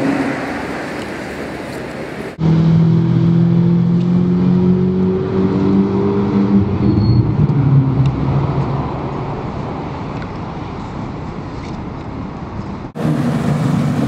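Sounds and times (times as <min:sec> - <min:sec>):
sports car engine accelerating: 0:02.4 - 0:09.7.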